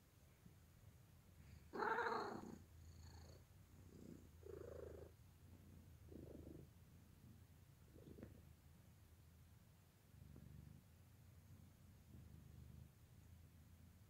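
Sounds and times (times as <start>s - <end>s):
kitten purring: 1.4s - 9.0s, 10.0s - 14.0s.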